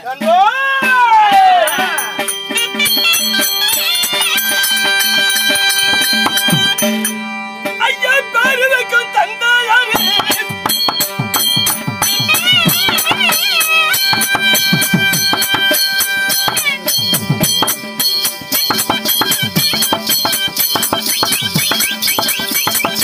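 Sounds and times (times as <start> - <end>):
wind instrument melody: 0.8 - 23.0
ankle bells jingling: 1.6 - 23.0
harmonium drone: 1.6 - 23.0.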